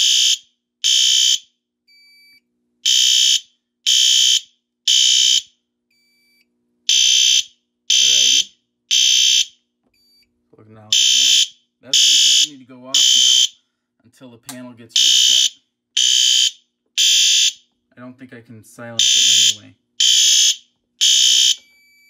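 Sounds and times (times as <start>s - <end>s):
high-pitched alarm beeps: 6.2s - 10.2s, 10.9s - 13.5s, 15.0s - 17.6s, 19.0s - 21.7s.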